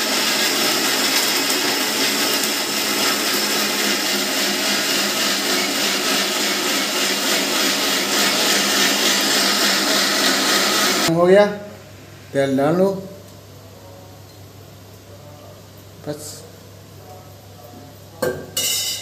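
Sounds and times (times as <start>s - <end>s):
electric mixer grinder running: 0.0s - 11.1s.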